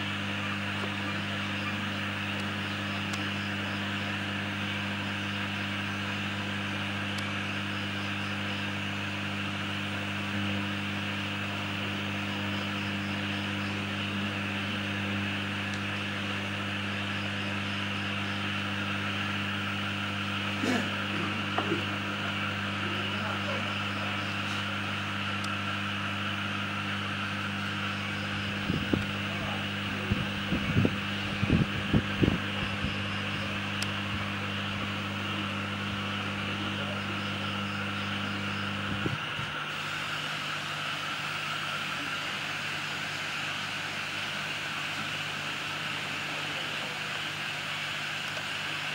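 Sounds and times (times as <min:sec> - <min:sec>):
electrical mains hum: 0:00.0 - 0:48.9.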